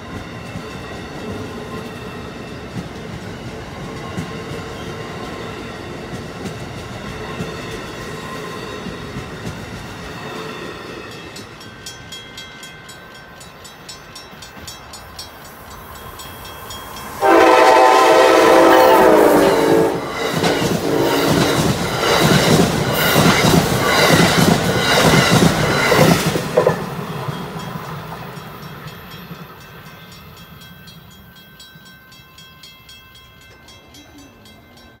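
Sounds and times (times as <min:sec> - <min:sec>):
train rumbling: 0:00.0 - 0:35.0
locomotive horn blast: 0:17.2 - 0:20.1, 0:20.7 - 0:21.4.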